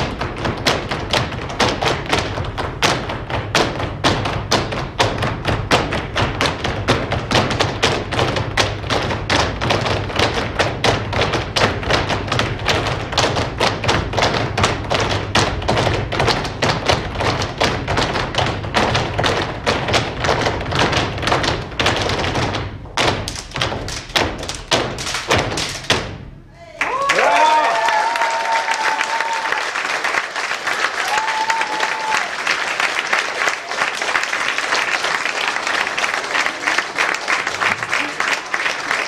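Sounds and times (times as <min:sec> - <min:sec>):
dancers stamping on stage floor: 0:00.0 - 0:30.2.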